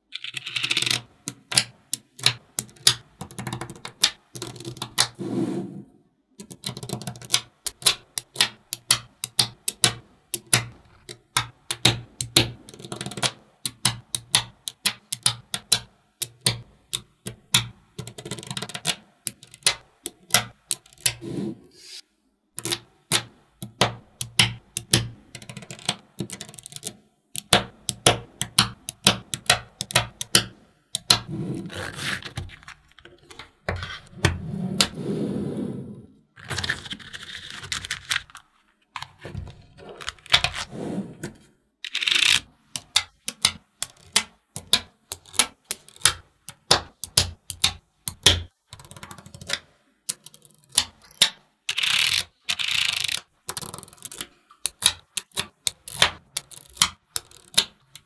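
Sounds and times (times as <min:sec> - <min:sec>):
magnetic balls clicking: 0:00.0 - 0:05.2, 0:06.4 - 0:21.2, 0:22.6 - 0:31.3, 0:41.9 - 0:58.0.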